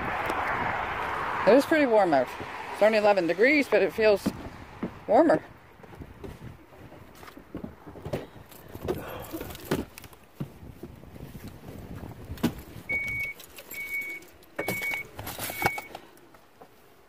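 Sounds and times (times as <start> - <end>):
clicks and knocks in vehicle: 5.8 - 11.0, 12.3 - 16.8
vehicle warning chime dinging: 12.9 - 16.0.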